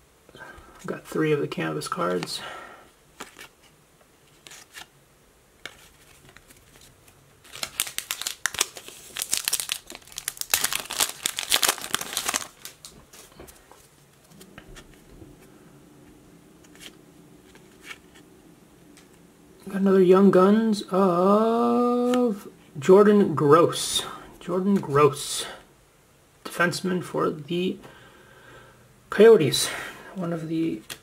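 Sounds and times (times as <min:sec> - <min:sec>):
foil wrapper tearing and crinkling: 0:07.4 - 0:13.0.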